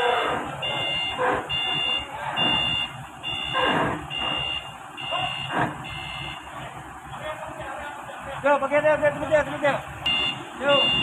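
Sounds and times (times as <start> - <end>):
forklift engine running low: 0.0 - 11.0
reversing alarm beeps: 0.6 - 6.5, 10.1 - 11.0.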